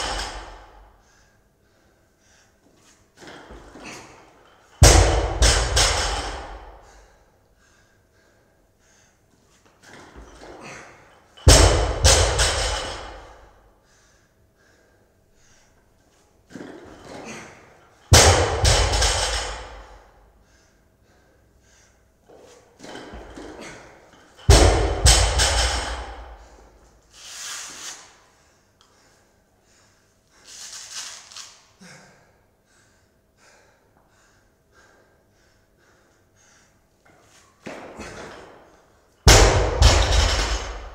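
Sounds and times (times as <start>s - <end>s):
barbell thudding on floor: 4.8s - 6.7s, 11.5s - 13.4s, 24.5s - 26.4s, 39.3s - 40.9s
person panting hard: 31.8s - 37.0s.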